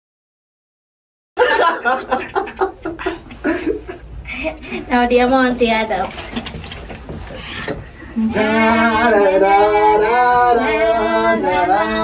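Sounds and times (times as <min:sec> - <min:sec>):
person singing slow tune: 0:08.1 - 0:12.0.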